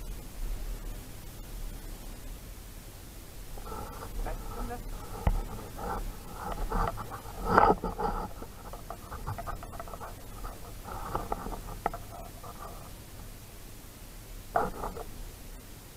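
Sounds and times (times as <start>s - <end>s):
dog panting: 3.6s - 12.9s.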